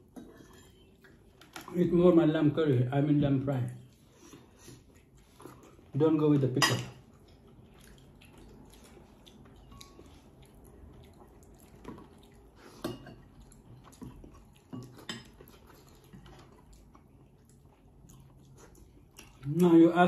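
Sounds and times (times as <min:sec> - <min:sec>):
cutlery and dishes clinking: 0:00.0 - 0:01.8, 0:06.3 - 0:07.1
low room hum: 0:00.0 - 0:20.0.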